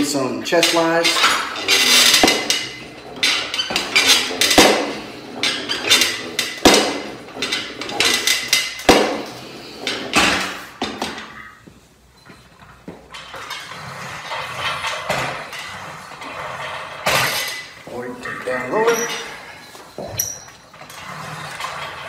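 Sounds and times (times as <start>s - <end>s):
gym machine moving and rustling: 0.0s - 22.0s
gym weight metal clank: 0.6s - 11.4s.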